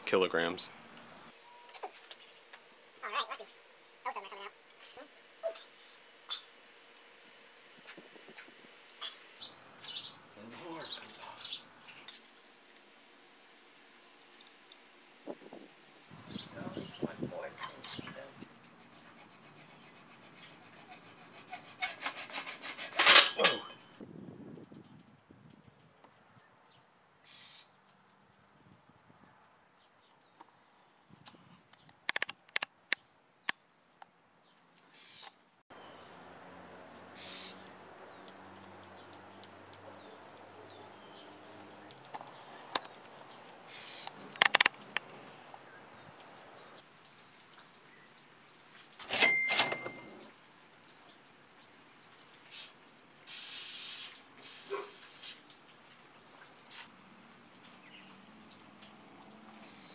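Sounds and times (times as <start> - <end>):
bird calling faintly: 1.3 - 7.0
sharp clicks: 31.7 - 33.6, 44.0 - 45.1
aerosol can spraying: 53.3 - 55.4.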